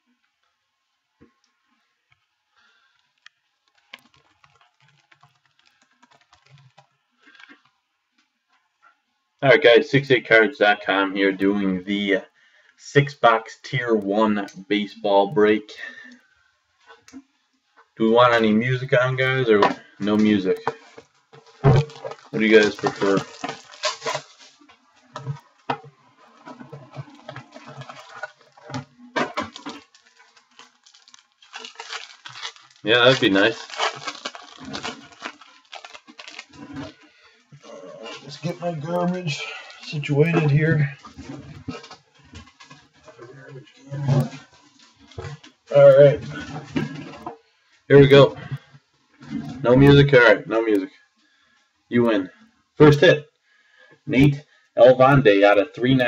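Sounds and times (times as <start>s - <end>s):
faint typing on laptop keyboard: 1.2s - 8.9s
packaging rustling: 3.0s - 7.6s, 19.7s - 45.6s.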